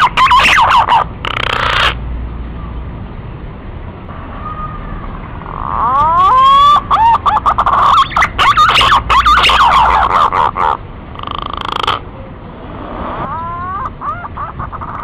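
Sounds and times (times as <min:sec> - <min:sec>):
pigeon whistling calls: 0:00.0 - 0:02.0, 0:05.7 - 0:12.0.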